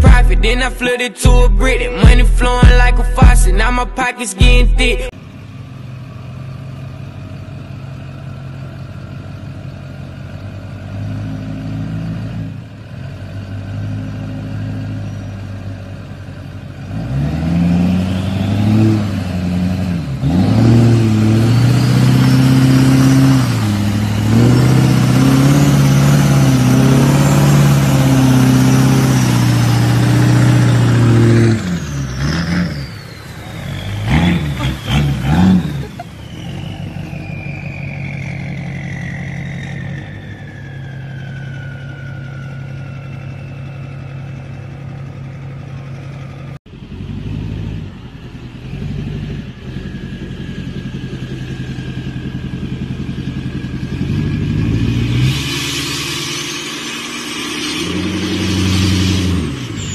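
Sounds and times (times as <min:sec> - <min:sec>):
diesel pickup engine revving: 0:00.0 - 0:59.9
high whine falling in pitch: 0:54.6 - 0:59.9.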